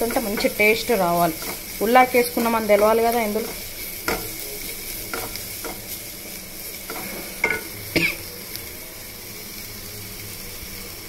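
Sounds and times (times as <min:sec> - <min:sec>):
wooden spatula scraping a pan: 0:00.0 - 0:06.2, 0:06.8 - 0:08.2
onions sizzling in oil: 0:00.0 - 0:11.0.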